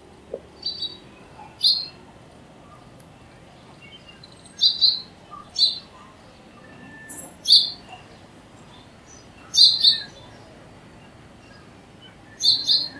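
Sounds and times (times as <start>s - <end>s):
sparrow chirping: 0.6s - 2.0s, 3.8s - 10.4s, 11.0s - 12.9s.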